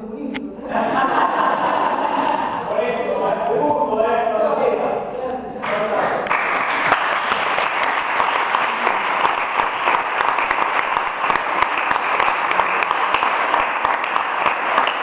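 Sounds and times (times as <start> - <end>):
audience applauding: 5.6 - 15.0.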